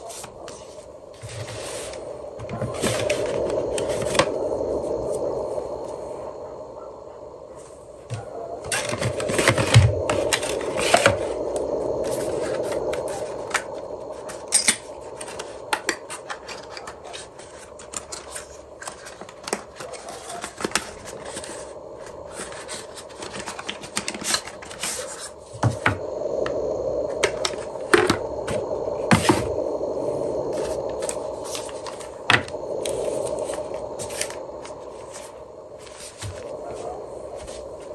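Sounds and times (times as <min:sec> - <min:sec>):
paper and cardboard rustling: 0:16.2 - 0:21.7.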